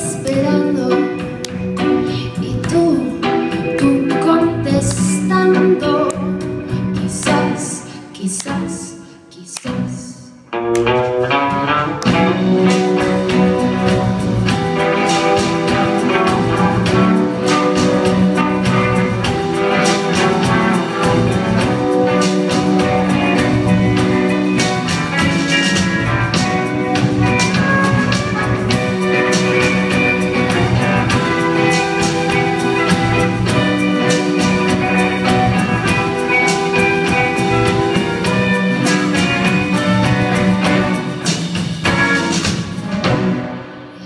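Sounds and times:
drum kit: 0:00.0 - 0:08.9, 0:09.6 - 0:44.0
electric guitar: 0:09.7 - 0:44.0.

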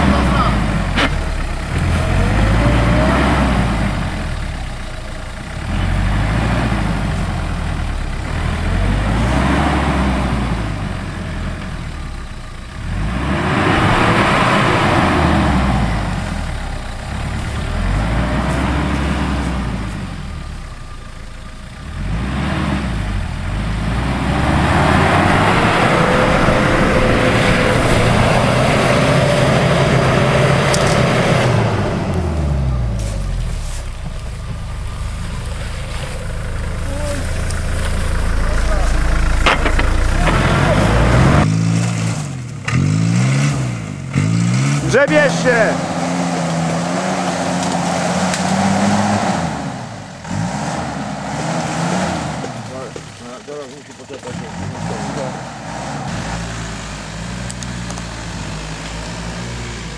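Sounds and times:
engine revving: 0:00.0 - 0:59.9.

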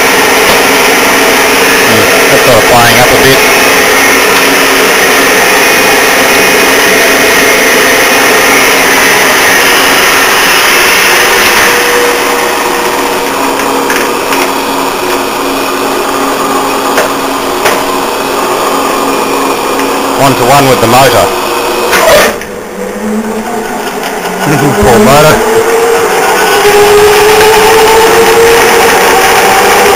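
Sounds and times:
lathe mechanical whirr: 0:00.0 - 0:29.9.

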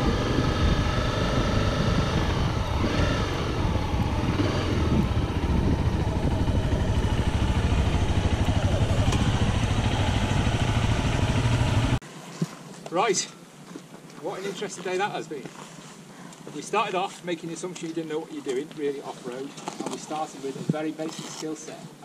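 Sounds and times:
motorbike engine running: 0:00.0 - 0:12.0.

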